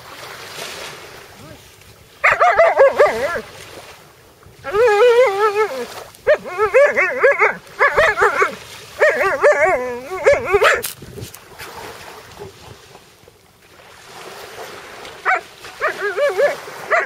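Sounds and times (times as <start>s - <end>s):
dog howling: 2.2s - 3.5s, 4.6s - 10.8s, 15.3s - 17.0s.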